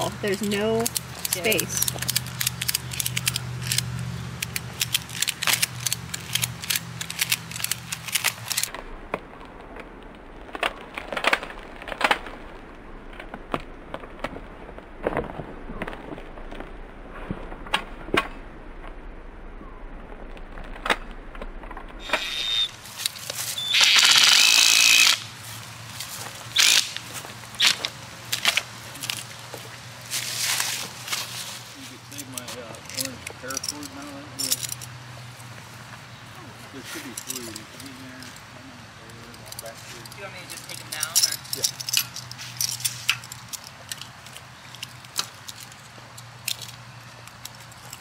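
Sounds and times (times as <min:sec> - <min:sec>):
loud noisy burst: 0:23.6 - 0:25.3.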